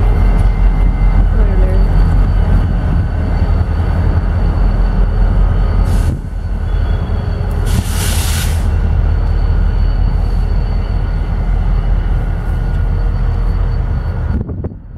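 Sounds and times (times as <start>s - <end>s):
diesel locomotives rumbling: 0.0s - 14.9s
brief hiss: 7.7s - 8.8s.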